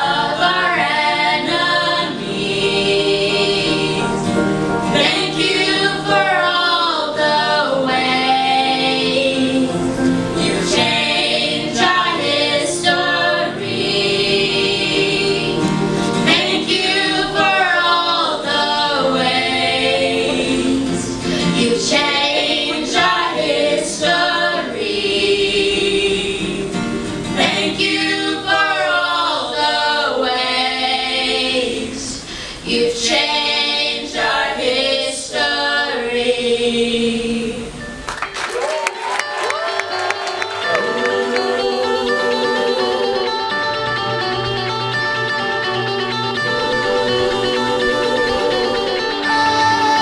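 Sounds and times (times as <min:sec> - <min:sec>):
group singing gospel: 0:00.0 - 0:38.0, 0:39.0 - 0:50.0
steady musical accompaniment: 0:00.0 - 0:50.0.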